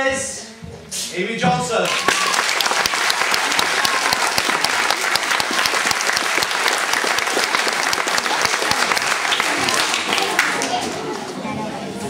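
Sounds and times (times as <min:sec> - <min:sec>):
crowd applauding: 0:01.8 - 0:11.4.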